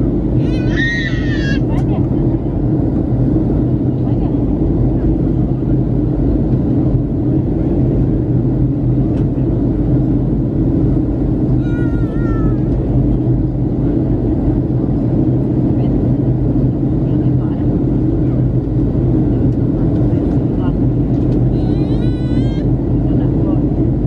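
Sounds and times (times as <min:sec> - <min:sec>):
aircraft cabin drone: 0:00.0 - 0:24.0.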